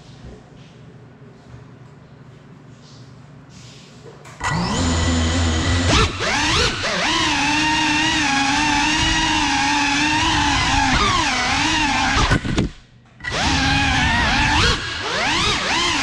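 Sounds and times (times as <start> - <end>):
drone motors whining: 4.4 - 16.0.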